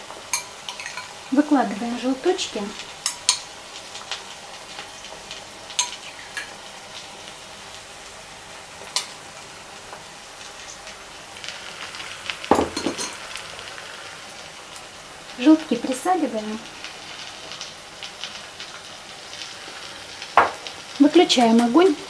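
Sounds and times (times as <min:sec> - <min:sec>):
eggs sizzling in a pan: 0:00.0 - 0:22.0
metal spoon clinking on glass bowl: 0:00.3 - 0:01.1, 0:12.6 - 0:13.2.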